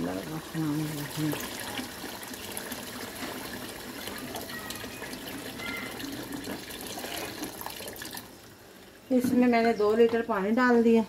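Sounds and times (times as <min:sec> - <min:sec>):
water pouring into a pot: 0:00.0 - 0:08.6.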